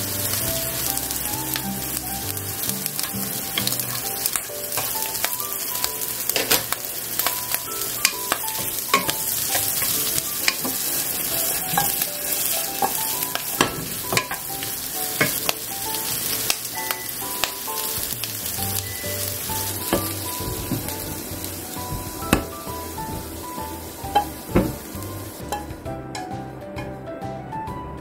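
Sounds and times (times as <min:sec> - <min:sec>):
food sizzling in a frying pan: 0:00.0 - 0:25.8
wooden spatula knocking on pan: 0:15.2 - 0:15.6, 0:19.9 - 0:23.4, 0:24.1 - 0:24.9.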